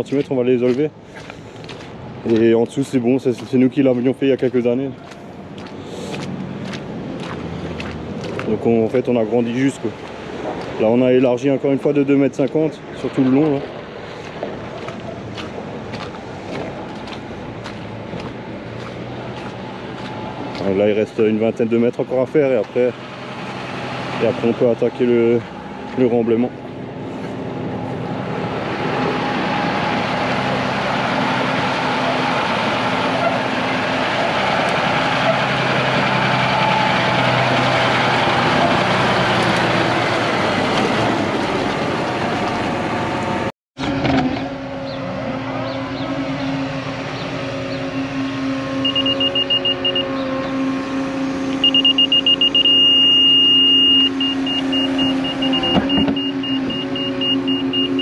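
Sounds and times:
diesel machinery engines running: 0.0 - 58.0
high-pitched warning beeper: 48.8 - 50.6, 51.6 - 58.0.

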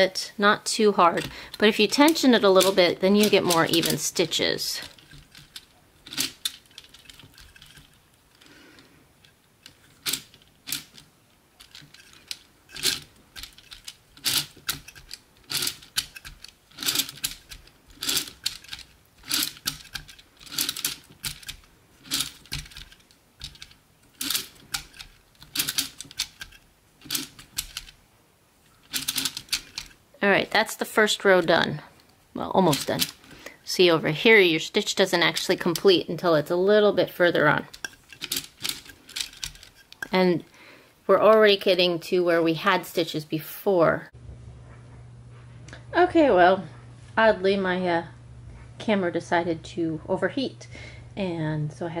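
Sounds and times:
knitting machine needles clicking: 0.4 - 28.0, 28.7 - 40.6.

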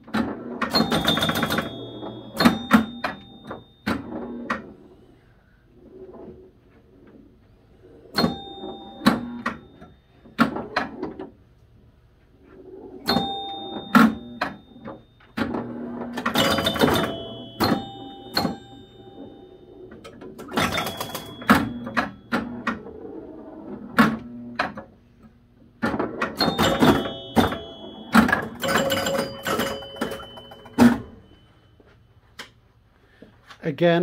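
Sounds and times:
pinball flippers clacking: 0.0 - 4.7, 8.1 - 11.4, 13.0 - 25.0, 25.8 - 31.3
pinball chimes ringing: 0.1 - 4.9, 7.9 - 11.4, 12.7 - 24.9, 25.8 - 31.9.

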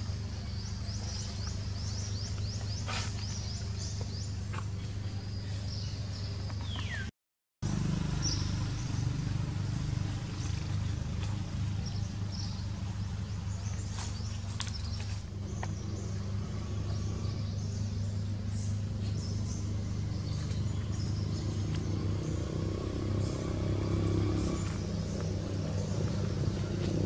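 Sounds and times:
birds chirping and whistling: 0.0 - 7.1, 8.0 - 27.0
steady low rumble: 8.2 - 27.0.

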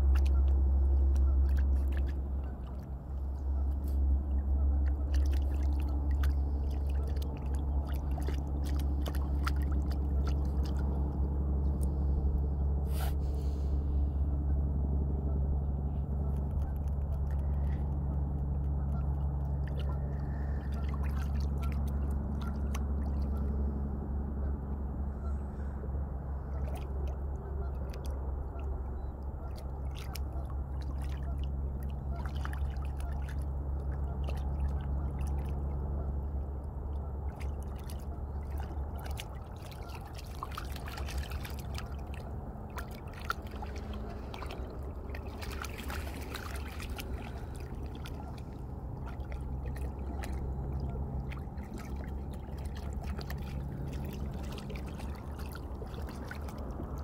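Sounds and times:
steady low hum: 0.0 - 57.0
dog splashing in water: 4.9 - 11.0, 37.4 - 57.0.

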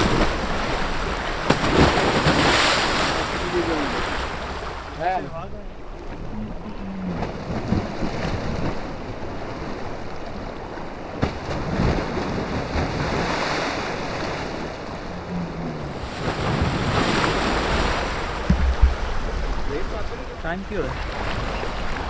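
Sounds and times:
floodwater rushing: 0.0 - 22.0
wind on microphone: 6.1 - 22.0.

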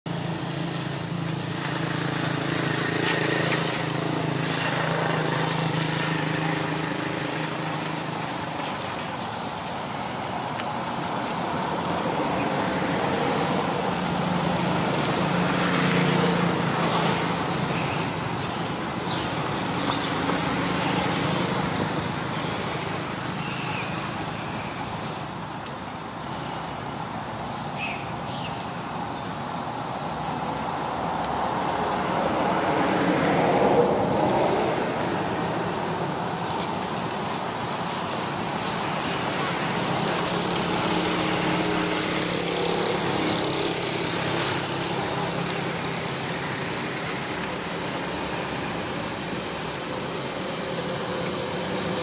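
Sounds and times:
traffic engine drone: 0.1 - 52.0.

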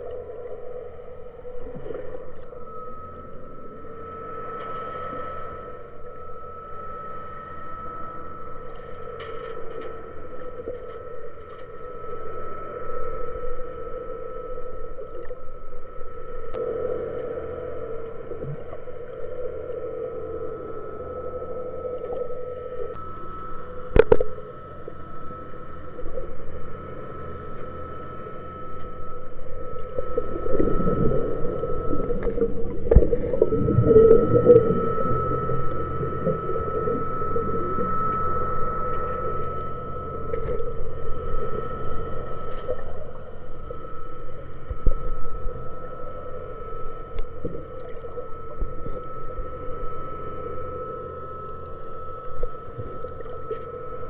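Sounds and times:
boat engine hum underwater: 0.0 - 54.0
low underwater rumble: 27.5 - 54.0.

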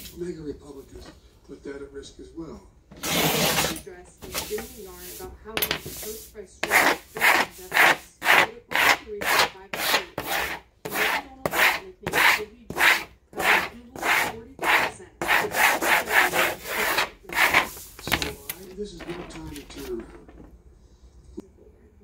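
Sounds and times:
squeegee scraping over vinyl: 3.0 - 5.3, 5.9 - 18.7.

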